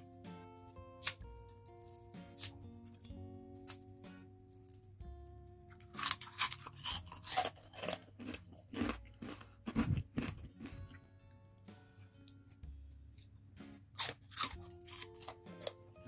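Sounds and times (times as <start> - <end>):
soft background music: 0.0 - 16.0
potato chip crunching: 0.9 - 5.0, 5.6 - 10.9, 14.0 - 15.8.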